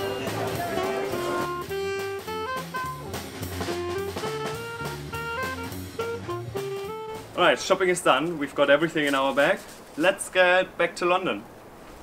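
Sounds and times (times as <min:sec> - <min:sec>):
jazzy music with drum kit: 0:00.0 - 0:08.4.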